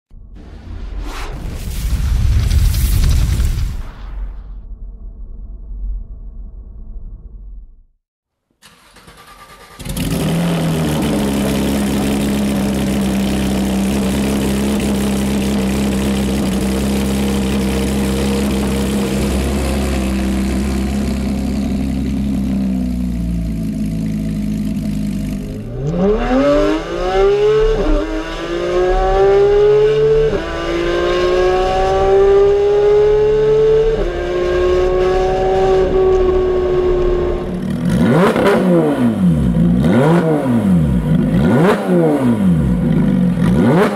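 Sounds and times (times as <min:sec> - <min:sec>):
loud car engine idling: 0:10.8 - 0:25.7
car engine accelerating through upshifts: 0:25.6 - 0:43.9.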